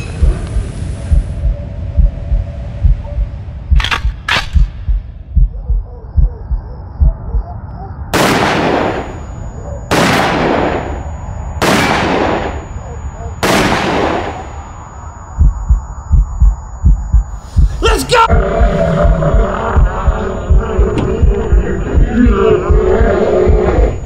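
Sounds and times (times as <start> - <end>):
low heartbeat-like thumps: 0.0 - 8.0, 15.3 - 24.0
sharp clicks: 3.7 - 5.0
echoing pistol shots: 8.1 - 9.2, 9.9 - 11.0, 11.6 - 12.7, 13.4 - 14.5.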